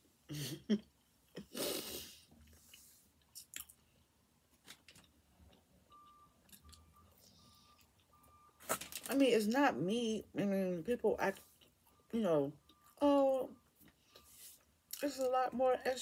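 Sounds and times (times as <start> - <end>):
person chewing food: 2.4 - 4.1, 4.9 - 8.9.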